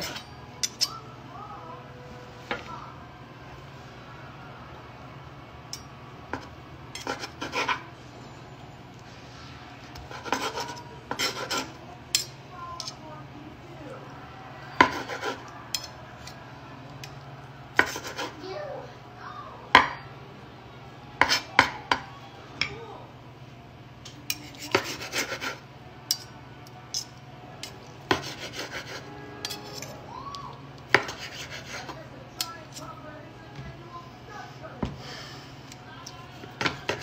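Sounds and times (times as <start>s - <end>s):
cutlery clicks and scrapes: 0.0s - 1.0s, 5.7s - 7.8s, 9.9s - 13.0s, 14.8s - 17.2s, 17.8s - 18.4s, 21.2s - 22.0s, 24.0s - 30.0s, 30.8s - 33.0s, 35.6s - 37.0s
steady low hum: 0.0s - 37.0s.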